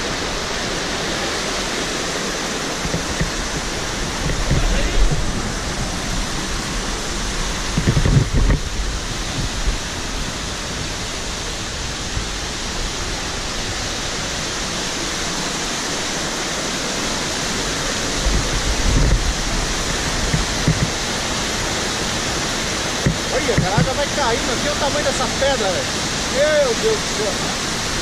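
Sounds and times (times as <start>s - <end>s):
river water rushing over rocks: 0.0s - 28.0s
low thumps on microphone: 2.8s - 5.8s, 7.6s - 9.6s, 18.2s - 19.4s, 20.2s - 21.0s.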